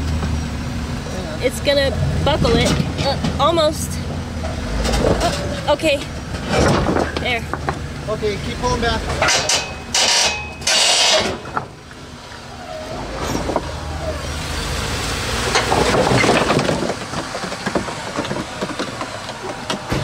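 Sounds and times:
car engine revving: 1.0s - 9.3s, 10.6s - 20.0s
knocks and crunches on rock: 15.6s - 20.0s.

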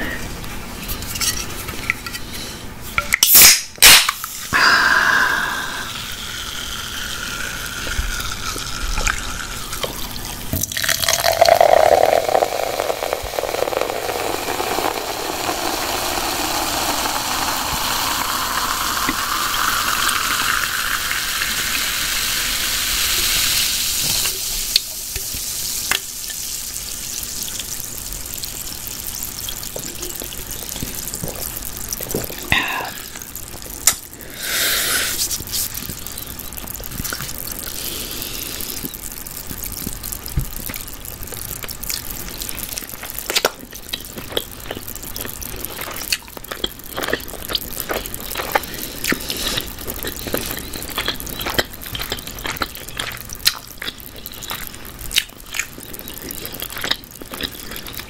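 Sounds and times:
water poured into glass: 4.6s - 22.1s.

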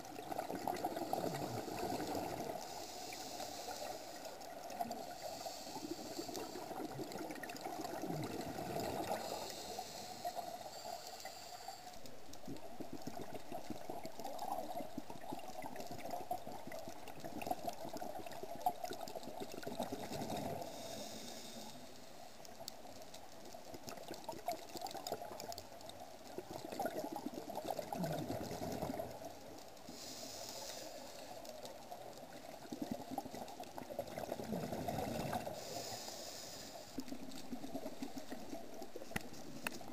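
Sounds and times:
underwater rush: 0.0s - 39.9s
diver breathing through regulator: 0.9s - 7.0s, 8.6s - 12.0s, 20.2s - 22.2s, 29.9s - 31.6s, 34.7s - 38.7s.

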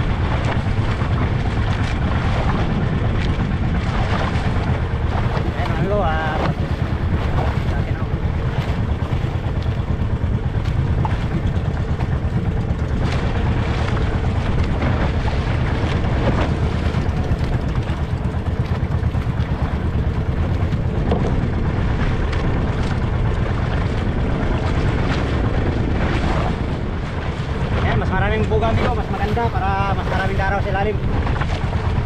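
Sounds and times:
boat engine droning: 0.0s - 32.0s
water rushing around hull: 0.0s - 32.0s
wind: 0.0s - 32.0s.

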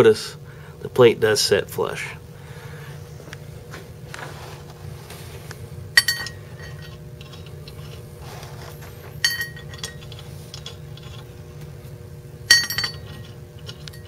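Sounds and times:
metal bolts clinking on metal: 9.2s - 10.7s, 12.5s - 14.0s.

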